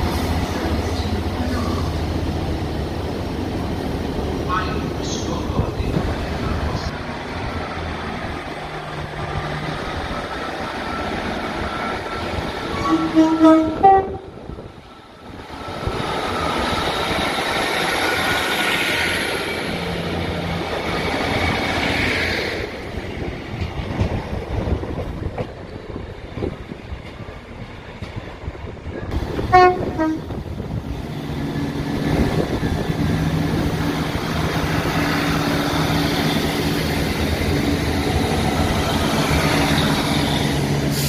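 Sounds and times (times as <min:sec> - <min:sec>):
diesel train passing: 0:00.0 - 0:41.0
train horn blasts: 0:12.7 - 0:14.4, 0:29.5 - 0:30.3.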